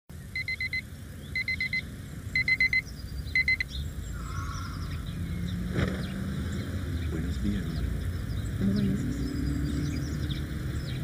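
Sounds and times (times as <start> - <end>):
alarm clock beeping: 0.4 - 0.8, 1.4 - 1.8, 2.4 - 2.8, 3.4 - 3.7.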